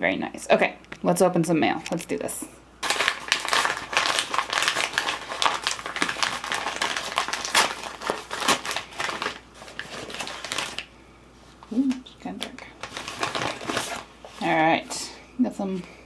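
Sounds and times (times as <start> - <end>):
envelope crinkling: 2.8 - 10.9, 11.9 - 14.6.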